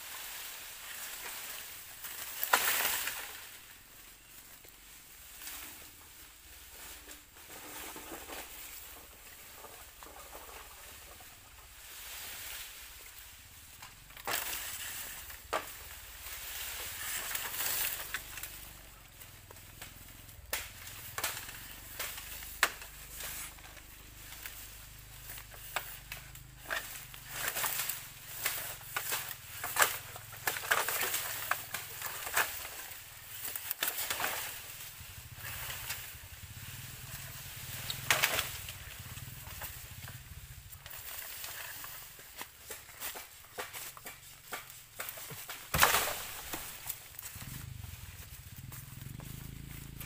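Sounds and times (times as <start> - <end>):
dry bamboo and leaves rustling: 0.0 - 50.0
sharp cracks: 37.7 - 40.2, 42.6 - 48.3.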